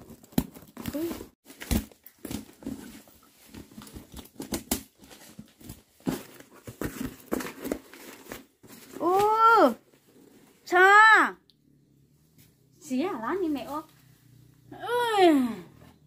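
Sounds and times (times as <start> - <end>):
cardboard and wrapping crinkling: 0.0 - 10.7.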